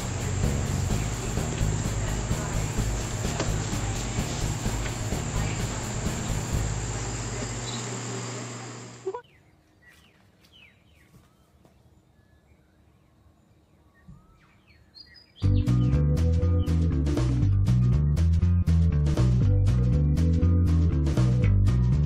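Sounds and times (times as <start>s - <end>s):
low hum: 0.0s - 9.2s
faint bird chirps: 9.0s - 15.9s.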